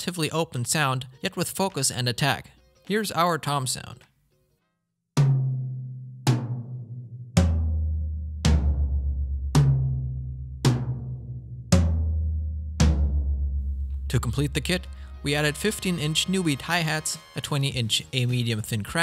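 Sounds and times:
tom drums struck with a stick: 5.2 - 15.0.

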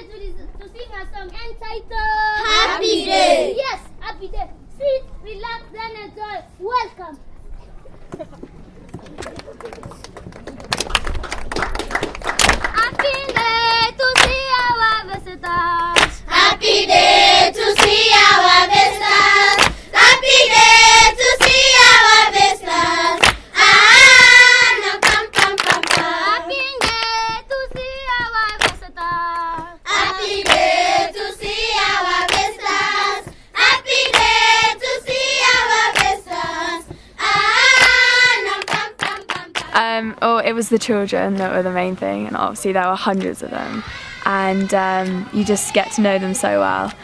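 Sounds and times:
children singing together: 2.2 - 3.6, 12.9 - 39.7, 43.7 - 46.0
rhythmic hand clapping: 8.9 - 16.2, 17.3 - 39.8.

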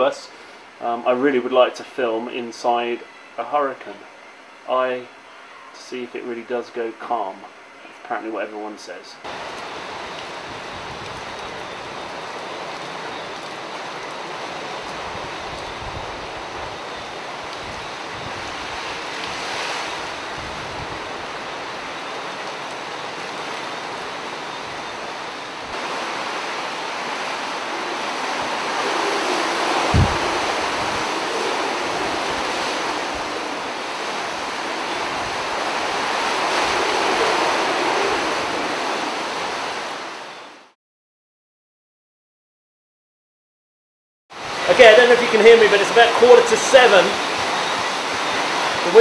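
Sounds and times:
hurricane wind gusting through trees: 0.0 - 40.8, 44.3 - 49.0
wind buffeting microphone: 10.0 - 12.0, 14.9 - 21.4, 25.8 - 40.0.

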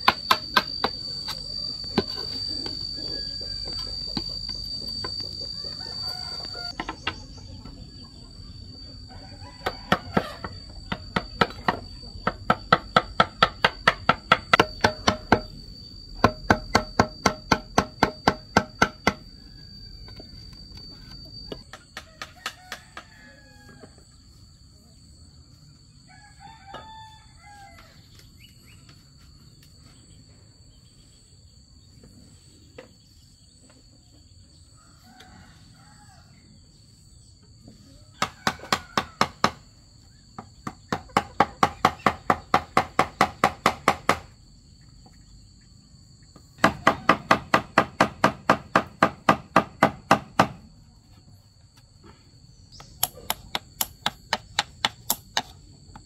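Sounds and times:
rooster crowing: 1.1 - 7.1, 8.8 - 12.0, 18.9 - 21.1, 21.9 - 24.2, 26.0 - 28.2, 34.7 - 36.6, 37.9 - 39.7
hammer tapping chisel into bamboo: 52.8 - 55.6.

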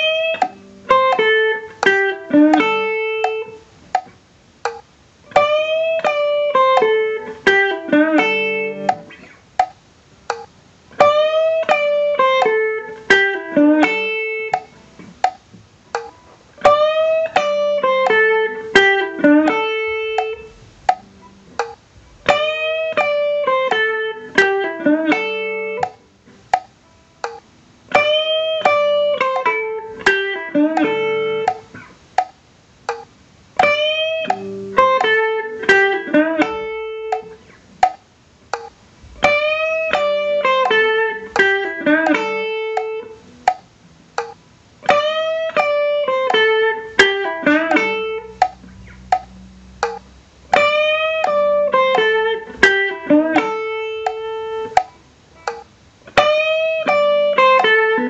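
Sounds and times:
electric guitar shuffle phrase: 0.0 - 3.6, 16.0 - 26.5, 27.3 - 31.9, 33.6 - 37.6, 38.6 - 58.0.

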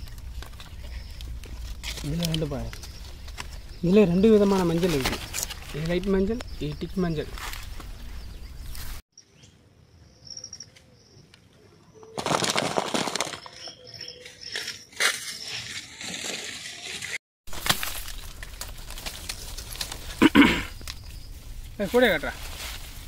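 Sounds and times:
leaves and branches rustling snapping: 0.0 - 6.5, 17.5 - 21.2
faint bird chirps: 6.3 - 12.2.

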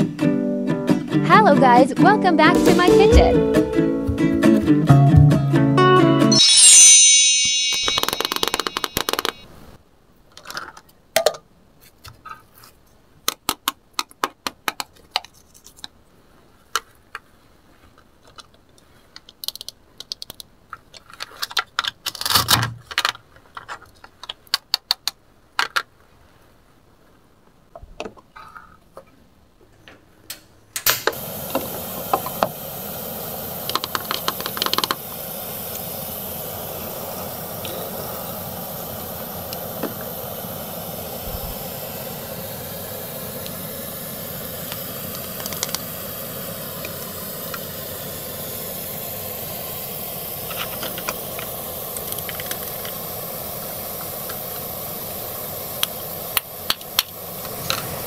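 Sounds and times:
toy pan sizzling hiss: 6.3 - 9.5, 31.0 - 58.0.

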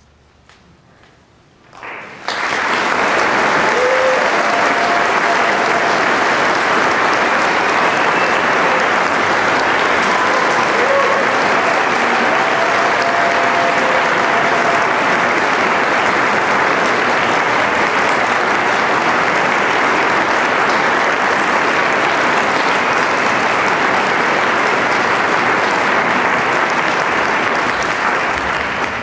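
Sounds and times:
audience applauding: 1.8 - 29.0.

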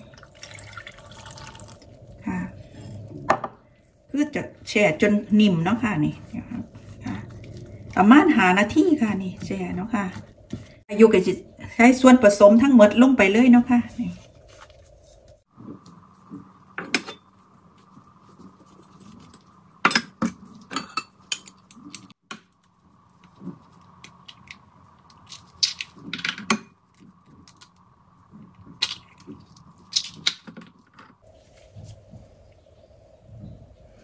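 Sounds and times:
eggs cracking: 22.6 - 30.5.

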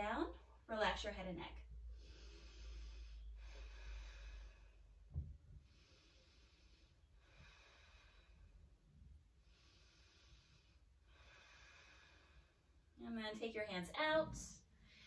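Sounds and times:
slow breathing: 1.8 - 13.0, 14.6 - 15.0
soft thump: 5.1 - 5.4.

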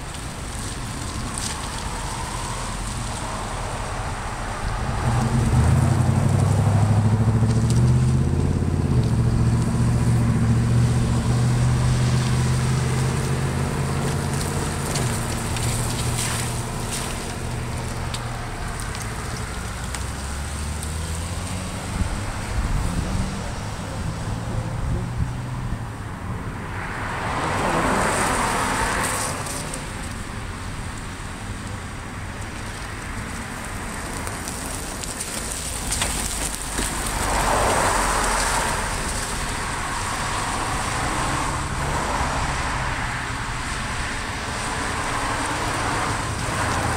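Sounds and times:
vehicle engine humming: 0.0 - 46.9
car passing on wet road: 0.1 - 26.0, 26.6 - 46.9.

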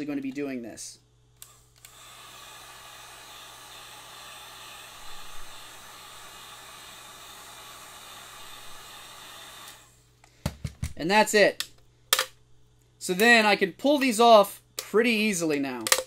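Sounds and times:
heat gun blowing hot air: 1.4 - 10.0.

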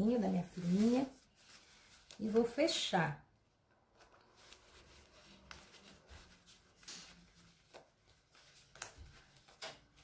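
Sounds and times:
fabric swishes: 0.0 - 2.5, 3.9 - 10.0
nylon jacket rustling: 0.3 - 2.2, 4.0 - 10.0.

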